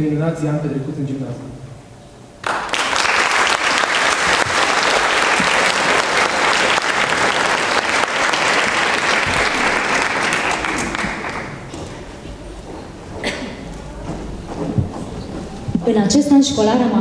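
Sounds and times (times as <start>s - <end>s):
crowd applauding: 2.4s - 12.5s.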